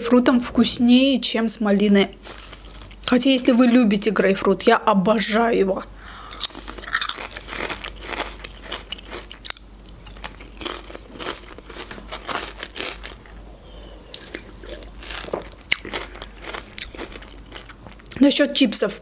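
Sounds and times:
crunching potato chips: 0:06.3 - 0:13.4, 0:14.1 - 0:18.2.

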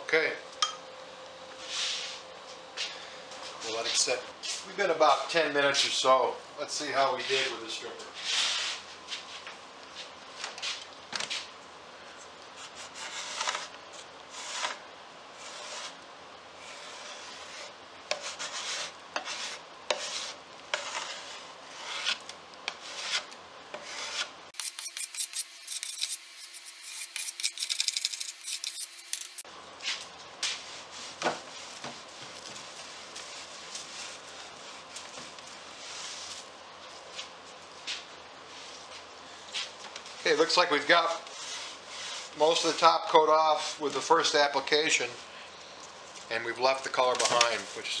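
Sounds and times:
scraper scraping wood: 0:12.6 - 0:14.8, 0:15.4 - 0:16.0, 0:16.6 - 0:29.4, 0:41.1 - 0:42.7
quick high-pitched rasping: 0:24.6 - 0:29.4.

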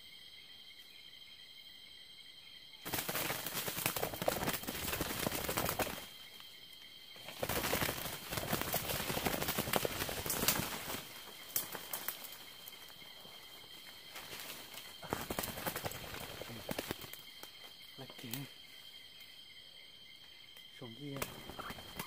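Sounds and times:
dry leaves and brush rustling: 0:02.8 - 0:06.4, 0:07.2 - 0:18.4.

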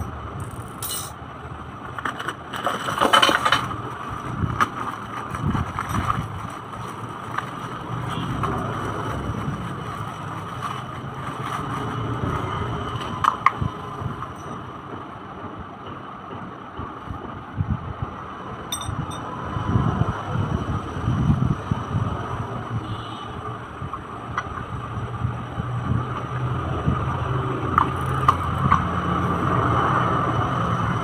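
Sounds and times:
clicks and clinks of parts: 0:00.0 - 0:01.2, 0:18.7 - 0:19.3.

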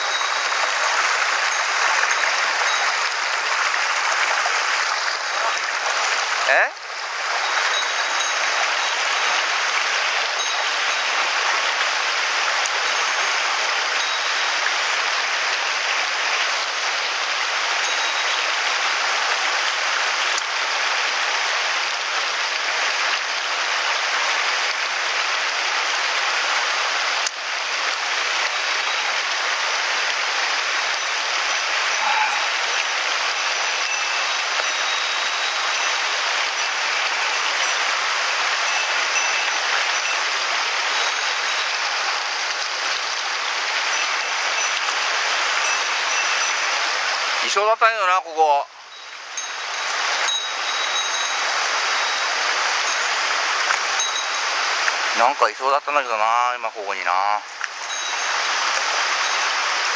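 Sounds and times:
stream rushing over stones: 0:00.0 - 0:59.9.

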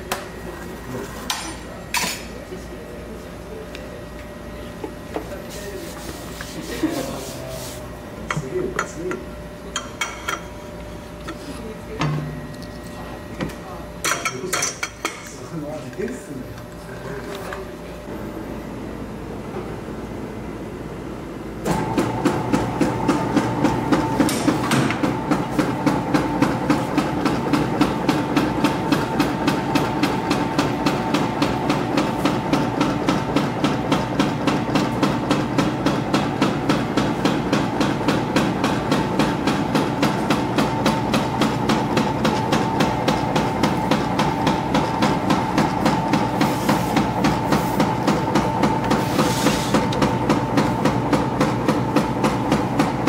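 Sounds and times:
noodle machine whining and clacking: 0:21.6 - 0:53.0.

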